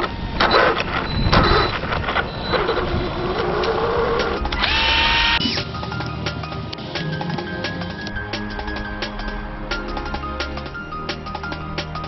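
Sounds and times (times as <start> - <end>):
electric motor whirring: 2.5 - 5.6
music: 4.1 - 12.0.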